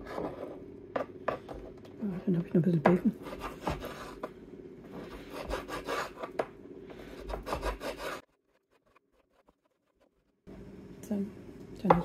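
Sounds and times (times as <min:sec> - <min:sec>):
knife cutting on wooden board: 0:03.2 - 0:04.3, 0:05.0 - 0:06.4, 0:07.2 - 0:09.8.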